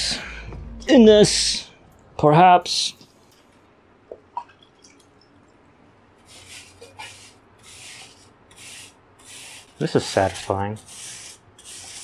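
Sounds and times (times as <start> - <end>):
sponge scrubbing metal coil: 6.3 - 12.0.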